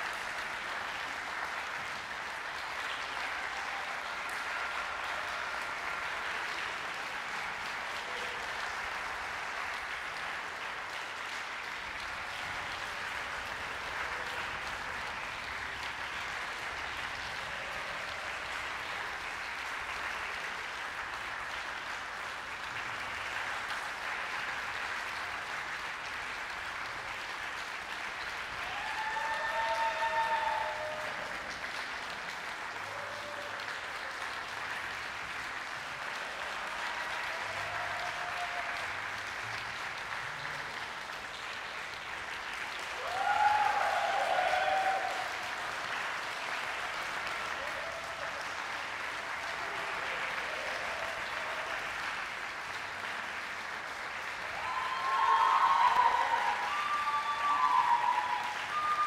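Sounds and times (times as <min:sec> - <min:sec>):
audience applauding: 0:00.0 - 0:59.0
high call from audience: 0:28.5 - 0:31.8, 0:36.0 - 0:39.6, 0:42.8 - 0:52.2, 0:54.2 - 0:59.0.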